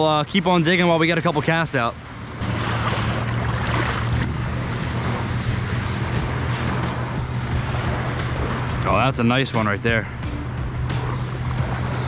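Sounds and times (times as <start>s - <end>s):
small waves washing over sand: 0.4s - 9.7s
wind rumble on microphone: 2.2s - 12.0s.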